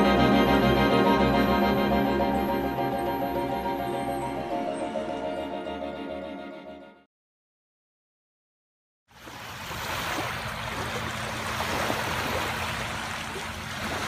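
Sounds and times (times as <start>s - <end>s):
small waves lapping on sand: 9.1s - 14.0s.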